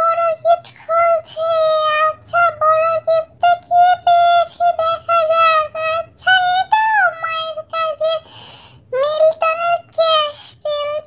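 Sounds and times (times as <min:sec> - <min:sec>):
child singing: 0:00.0 - 0:08.3, 0:08.9 - 0:11.0.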